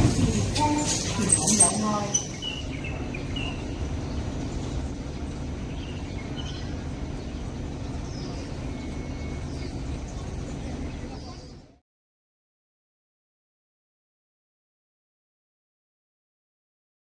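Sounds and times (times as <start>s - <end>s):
train humming and rumbling: 0.0s - 11.8s
faint high chirps: 5.7s - 11.7s.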